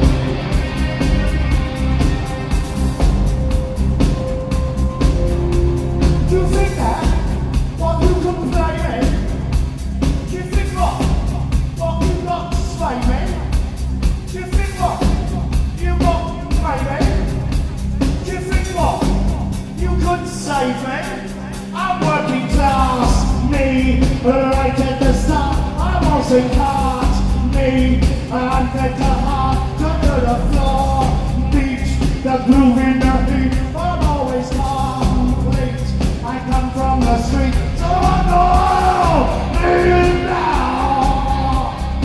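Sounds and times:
heavy bass: 0.0 - 42.0
live band playing: 0.0 - 42.0
man singing and shouting: 6.2 - 9.4, 10.3 - 13.6, 14.3 - 17.5, 18.2 - 42.0.

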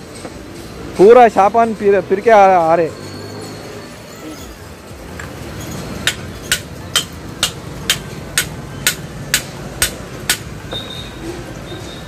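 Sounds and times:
hammer striking metal: 6.0 - 10.9.

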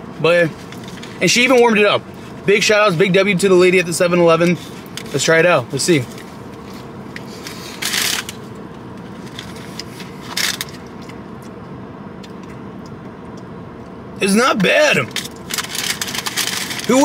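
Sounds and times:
low hum inside car cabin: 0.0 - 17.0
paper food wrapper rustling: 15.1 - 17.0.

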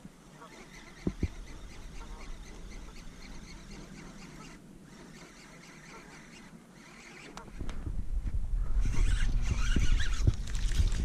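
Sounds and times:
geese honking: 0.3 - 7.6.

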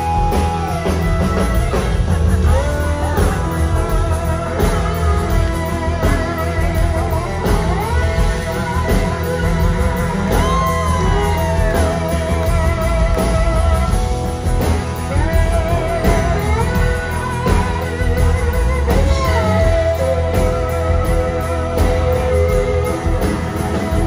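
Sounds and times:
live country-rock band: 0.0 - 24.0
wavering lead guitar line: 0.0 - 24.0.

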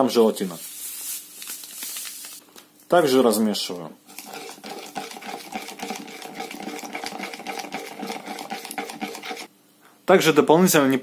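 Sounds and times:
teaspoon stirring in plastic cup: 4.1 - 9.5.

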